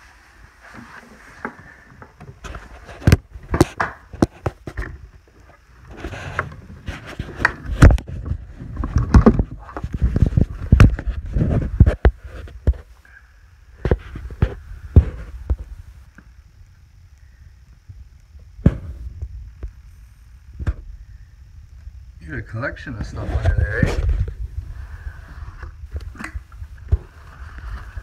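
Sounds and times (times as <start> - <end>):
knocks and scrapes: 0.6 - 12.9.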